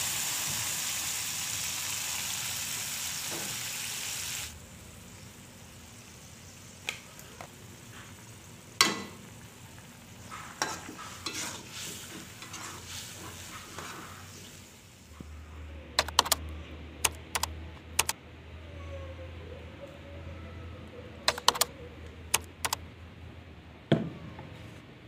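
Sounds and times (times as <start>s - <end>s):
sauce sizzling in a hot wok: 0.0s - 15.1s
metal spatula scraping wok: 10.3s - 14.3s.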